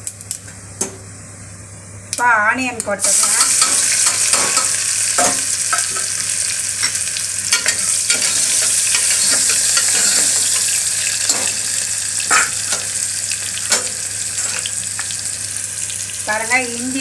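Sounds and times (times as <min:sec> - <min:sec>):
onions sizzling in oil: 0:02.8 - 0:17.0
spoon clinking and scraping pot: 0:06.8 - 0:11.7, 0:12.3 - 0:13.0.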